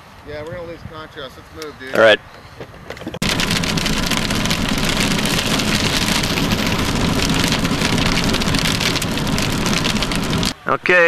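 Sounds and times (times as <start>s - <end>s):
road and engine noise: 0.0s - 11.0s
heavy rain on a car: 3.2s - 10.6s.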